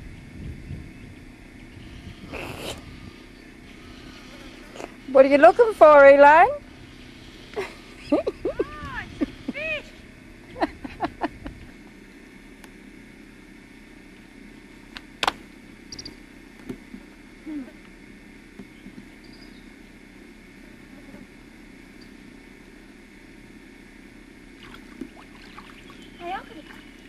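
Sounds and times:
low hum: 0:00.0 - 0:27.0
faint chirps: 0:15.9 - 0:16.2, 0:18.7 - 0:19.7
short pitched calls: 0:15.9 - 0:16.2.

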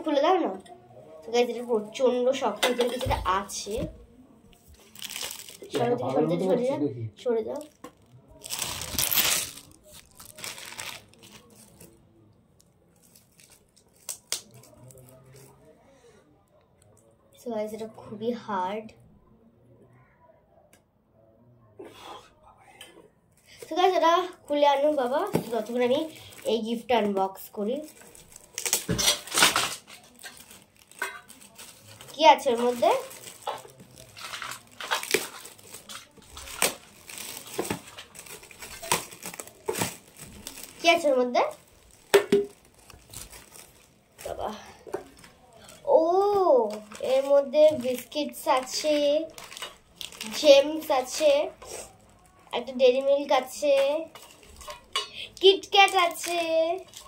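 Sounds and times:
plastic wrap crinkling: 0:04.6 - 0:06.6, 0:07.5 - 0:12.0, 0:12.6 - 0:15.6, 0:23.4 - 0:57.0.

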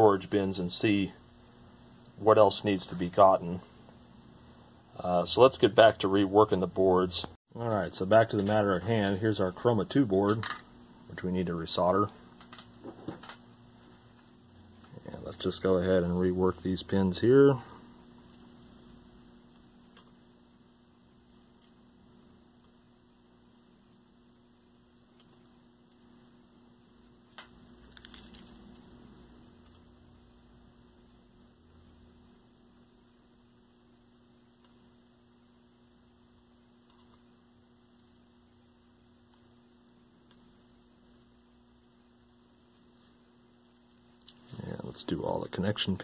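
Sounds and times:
faint electrical hum: 0:00.0 - 0:46.0
brief crackle: 0:27.3 - 0:28.9.

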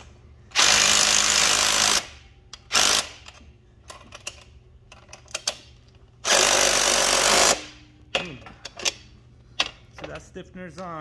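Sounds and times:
tool and wrench clicks: 0:02.5 - 0:06.5.

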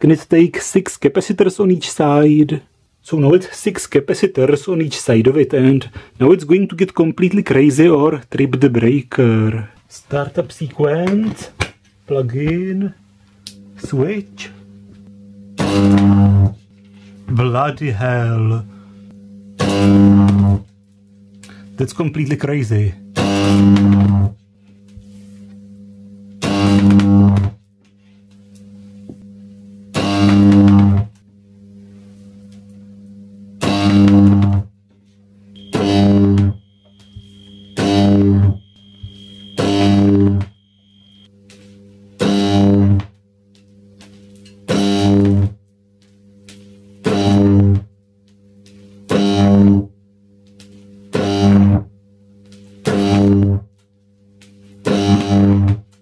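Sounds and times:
electric arc buzzing: 0:00.7 - 0:56.0
transformers humming: 0:35.6 - 0:41.3.

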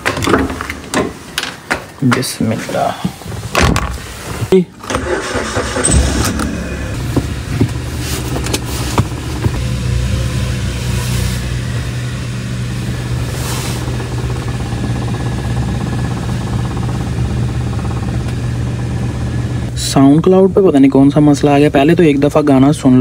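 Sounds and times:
car engine running: 0:04.9 - 0:23.0.

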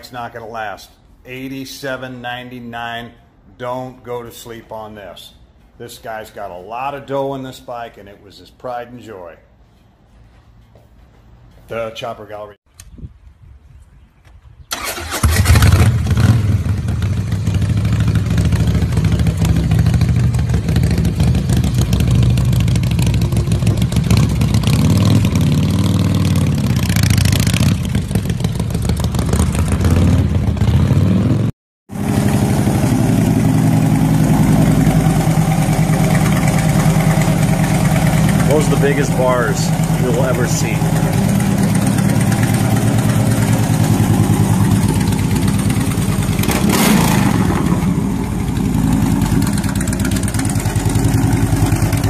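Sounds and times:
motorcycle engine revving: 0:14.7 - 0:52.0
motorcycle engine idling: 0:16.6 - 0:29.8, 0:32.0 - 0:52.0.

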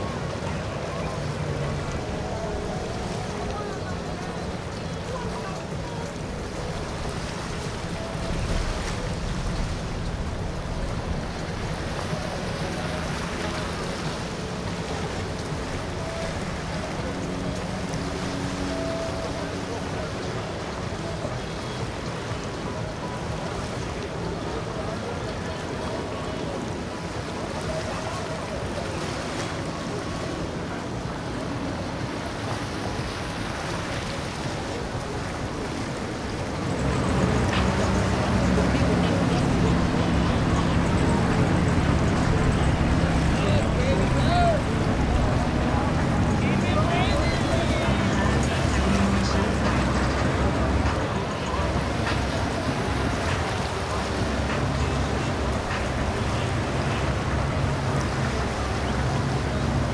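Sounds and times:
outboard engines idling: 0:00.0 - 0:59.9
water noise: 0:00.0 - 0:59.9.

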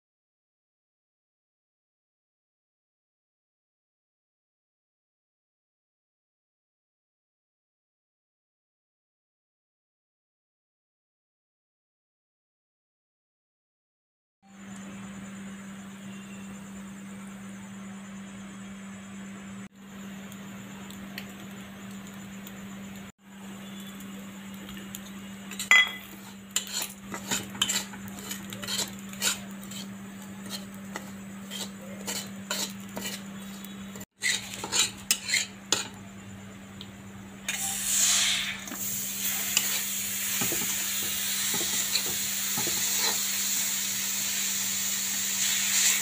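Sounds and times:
sizzling hiss: 0:19.8 - 0:36.6, 0:37.4 - 0:46.0
metal spatula scraping a pan: 0:24.7 - 0:36.0, 0:37.5 - 0:43.4.

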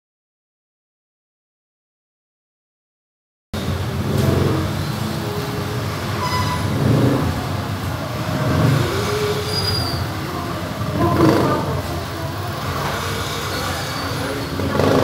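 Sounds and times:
motor vehicle rumble: 0:03.6 - 0:15.0.

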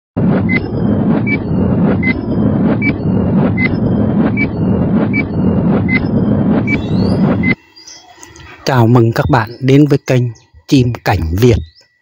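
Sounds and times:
loud rushing noise: 0:00.2 - 0:08.6.

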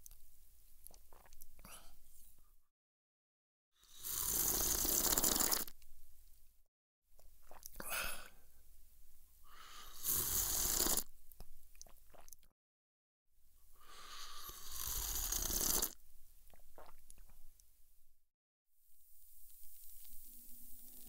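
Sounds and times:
person slurping coffee: 0:00.9 - 0:01.4, 0:03.8 - 0:05.8, 0:09.6 - 0:11.1, 0:11.8 - 0:12.4, 0:13.8 - 0:17.4.

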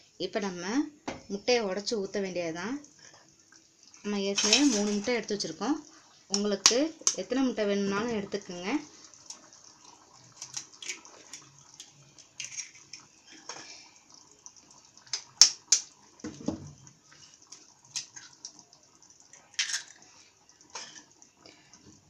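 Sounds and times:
gravy bubbling: 0:01.2 - 0:22.0
eggshells cracking: 0:10.4 - 0:13.1.

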